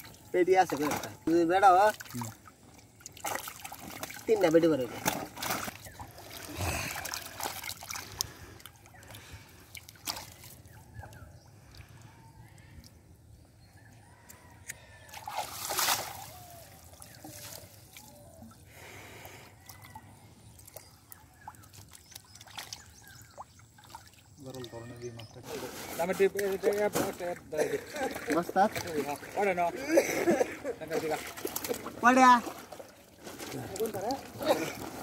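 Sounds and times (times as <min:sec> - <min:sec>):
fish thrashing in shallow water: 0:01.9 - 0:11.2, 0:15.0 - 0:18.4, 0:25.7 - 0:35.0
sharp splashes: 0:03.0 - 0:10.8, 0:15.1 - 0:18.1, 0:21.6 - 0:24.6, 0:30.9 - 0:35.0.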